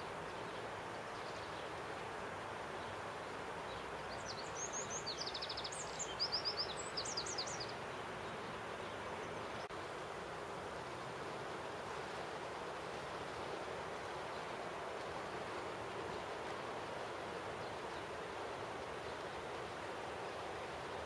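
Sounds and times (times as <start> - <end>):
rushing background hiss: 0.0 - 21.0
songbird chirping and trilling: 3.7 - 9.7.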